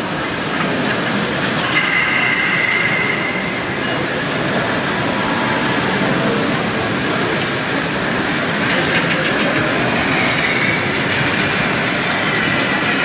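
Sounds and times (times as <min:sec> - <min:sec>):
tram rolling on track: 0:00.0 - 0:13.0
high wheel squeal: 0:01.6 - 0:06.2.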